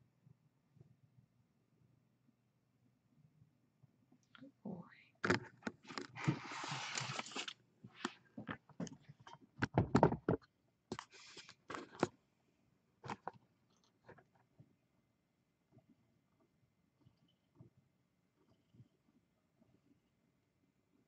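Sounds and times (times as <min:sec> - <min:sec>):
rustling and scraping: 0:05.2 - 0:12.1.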